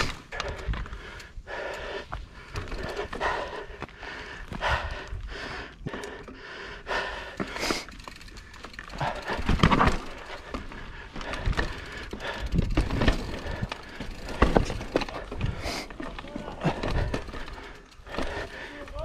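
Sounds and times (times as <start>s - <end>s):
bike knocking and rattling on rocks: 2.1s - 4.6s, 7.2s - 19.0s.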